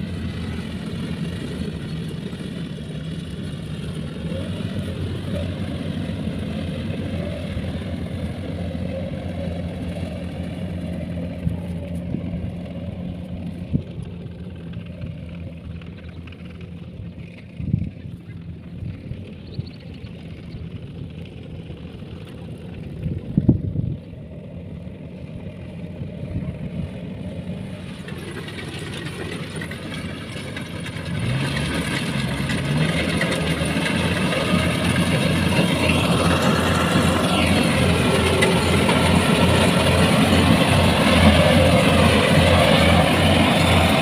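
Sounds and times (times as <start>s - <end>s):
combine harvester engine throbbing: 0.0s - 44.0s.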